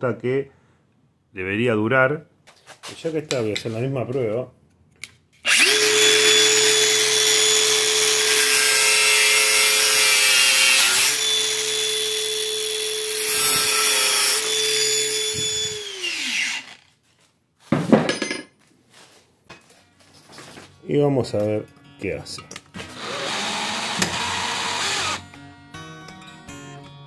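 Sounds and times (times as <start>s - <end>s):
angle grinder running: 5.5s - 16.8s, 22.8s - 25.2s
tool set down knock: 17.7s - 18.6s.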